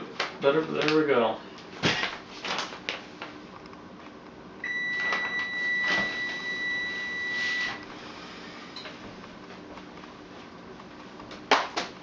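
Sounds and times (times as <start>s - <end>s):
high electronic beep: 4.7s - 7.8s.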